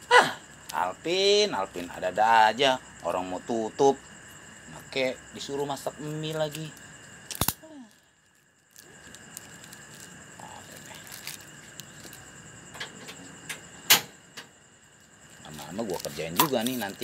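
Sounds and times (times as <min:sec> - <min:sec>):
night insects droning: 0:00.0 - 0:17.0
packets and utensils rustling: 0:15.0 - 0:17.0.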